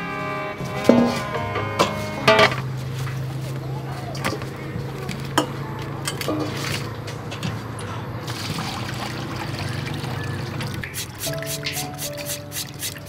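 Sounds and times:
water trickling and splashing: 8.2 - 13.0.

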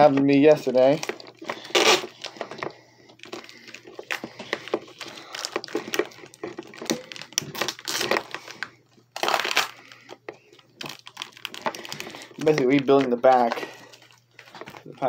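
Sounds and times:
tape ripping: 0.0 - 10.0
duct tape crinkling: 0.0 - 15.0.

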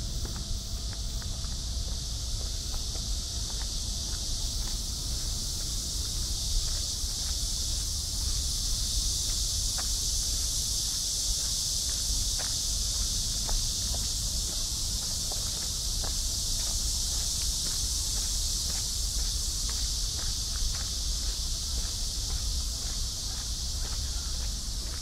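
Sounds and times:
faint footstep clicks: 0.0 - 5.8
high-pitched insect chorus: 0.0 - 25.0.

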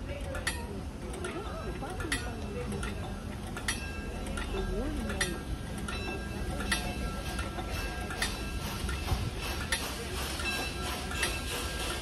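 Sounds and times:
crossing signal bell ringing: 5.8 - 9.2, 10.4 - 11.8.

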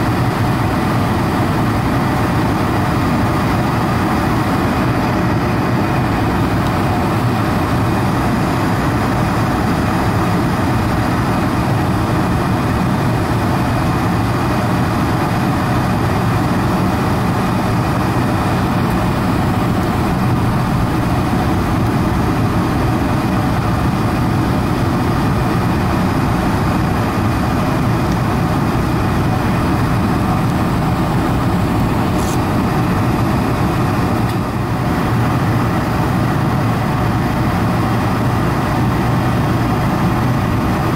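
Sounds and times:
airflow rush: 0.0 - 40.9
jet engine drone: 0.0 - 40.9.

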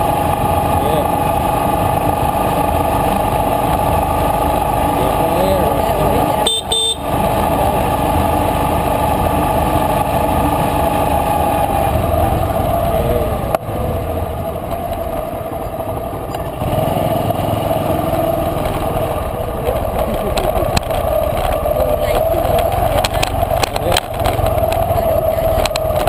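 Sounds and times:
motorcycle engine running: 0.0 - 26.0.

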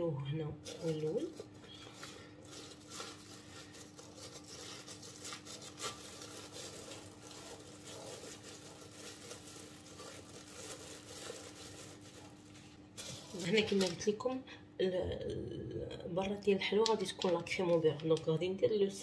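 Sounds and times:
plastic bag crinkling: 0.6 - 14.2.

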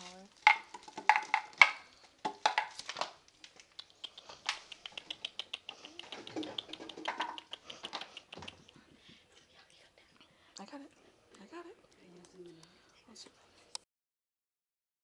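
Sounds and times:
puppy claws clicking on floor: 0.4 - 8.8.

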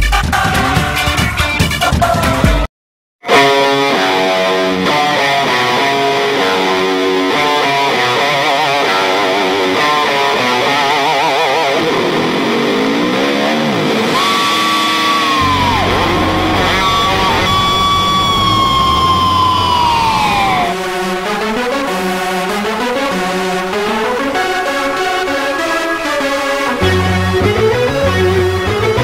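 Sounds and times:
distorted electric guitar: 3.2 - 29.0
bass: 15.0 - 20.9, 26.8 - 29.0.

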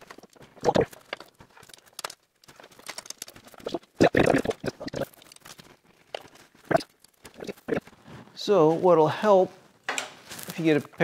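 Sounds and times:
tent poles knocking and clicking: 0.0 - 7.5.

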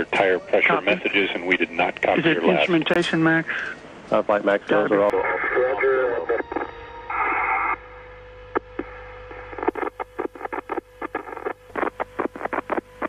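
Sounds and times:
loud burst of radio static: 5.1 - 7.8, 8.5 - 13.0.

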